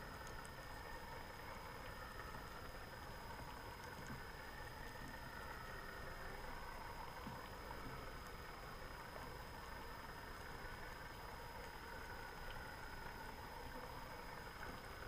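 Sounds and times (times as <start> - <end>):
constant high whine: 0.0 - 15.0
faint scattered clicks: 0.2 - 0.6, 3.4 - 5.2.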